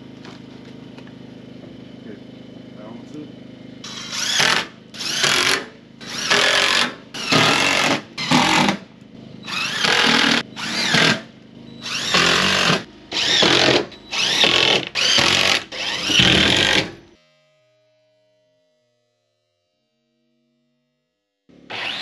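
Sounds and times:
cordless drill driving screws: 3.9 - 8.8, 9.4 - 11.2, 11.8 - 17.0, 21.7 - 22.0.

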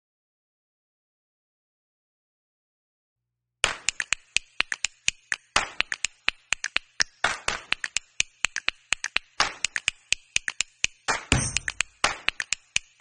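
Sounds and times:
rhythmic snapping clicks: 3.6 - 13.0.

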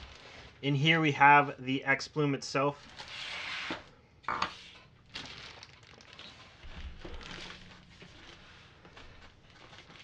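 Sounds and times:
plastic wrapping crinkling: 0.0 - 1.0, 5.0 - 10.0.

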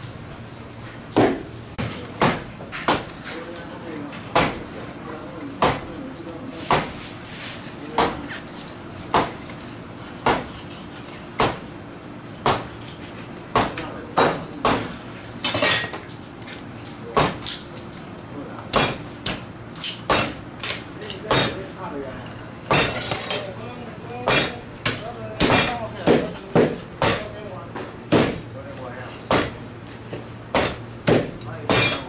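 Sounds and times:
knife chopping on wooden board: 1.2 - 3.2, 4.3 - 4.6, 5.6 - 5.9, 6.6 - 7.0, 8.0 - 8.3, 9.1 - 9.4, 10.2 - 10.5, 11.4 - 11.6, 12.4 - 12.7, 13.5 - 14.9, 17.2 - 17.5, 24.3 - 27.3, 28.1 - 28.4, 29.3 - 32.0.

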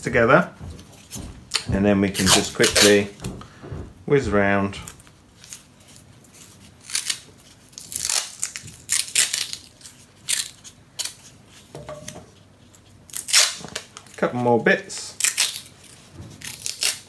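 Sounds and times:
masking tape ripping and rubbing: 0.1 - 4.2, 4.8 - 11.3, 13.1 - 14.2, 15.1 - 17.0.

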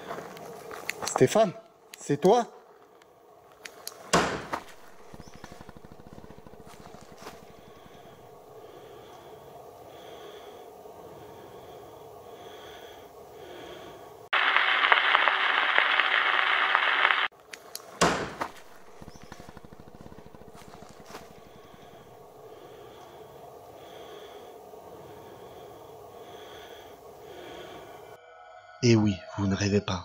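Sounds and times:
door slamming shut: 4.1 - 4.6, 18.0 - 18.5
loud static hiss: 14.3 - 17.3, 18.3 - 23.0.

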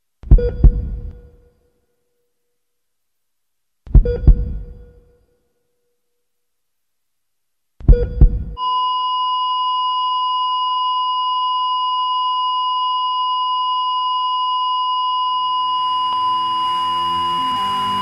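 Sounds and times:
heavy low thumps: 0.3 - 1.2, 3.9 - 4.9, 7.8 - 8.6
high electronic beep tone: 7.9 - 12.1, 14.7 - 18.0.

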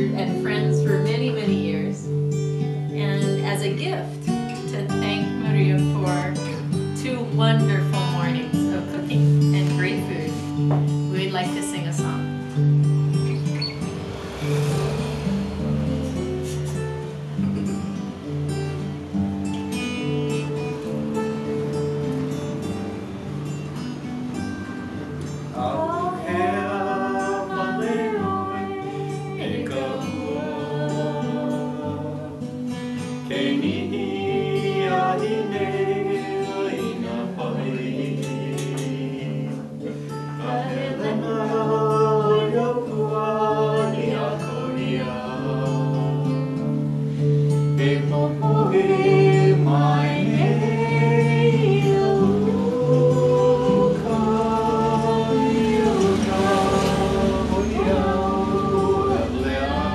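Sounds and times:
group of people singing: 0.0 - 2.0, 25.5 - 59.9
strummed acoustic guitar: 0.0 - 59.9.

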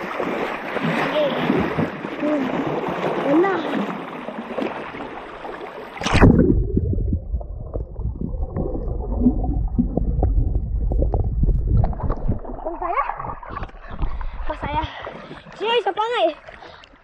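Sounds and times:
river water splashing: 0.0 - 6.7
underwater clicks and gurgles: 0.0 - 17.0
loud splash: 6.0 - 11.1
muffled underwater rumble: 6.0 - 15.0.

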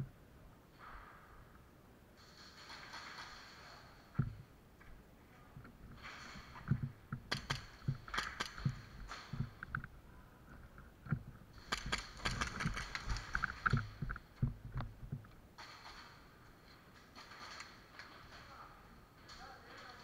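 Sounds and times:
sharp clicks: 7.2 - 9.9, 11.6 - 16.1.

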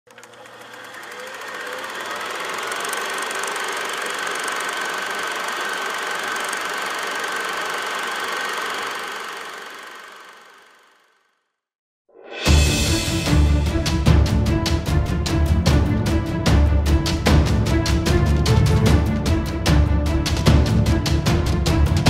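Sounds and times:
machine running steadily: 0.1 - 11.2.

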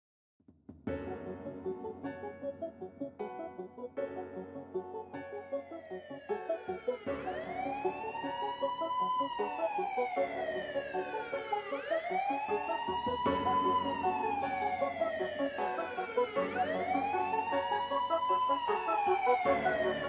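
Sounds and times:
beat with keyboard notes: 0.9 - 20.0
wailing siren: 4.9 - 20.0.

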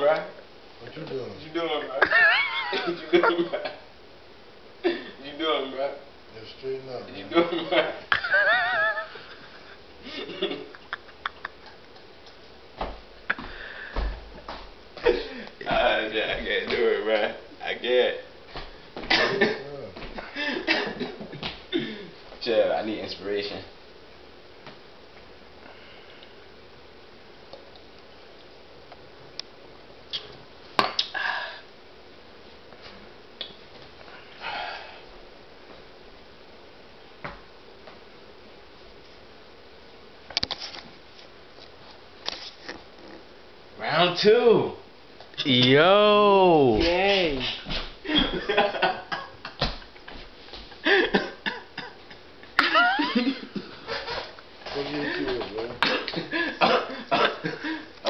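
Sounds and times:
people coughing: 19.1 - 19.6, 20.4 - 22.2, 50.8 - 52.7, 55.8 - 57.8.

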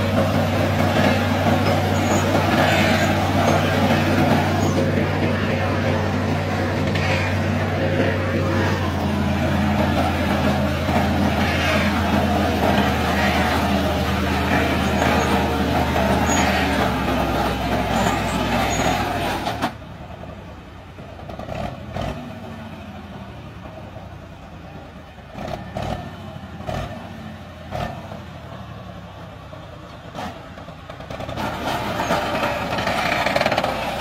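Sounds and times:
machine engine running: 0.0 - 19.6.

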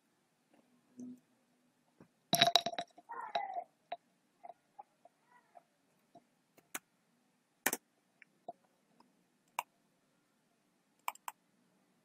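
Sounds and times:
mouse and keyboard clicks: 7.6 - 7.8, 11.0 - 11.4.

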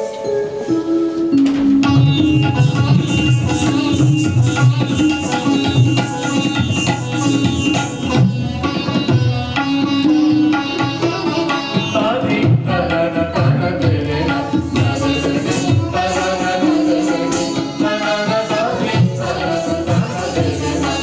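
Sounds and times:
pitched melody notes: 0.0 - 12.3
tabla playing: 0.0 - 21.0.

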